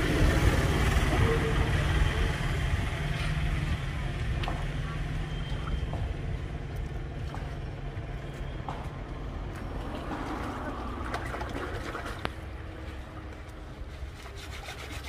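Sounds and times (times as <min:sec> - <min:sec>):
water splashing in a stream: 0:09.0 - 0:12.8.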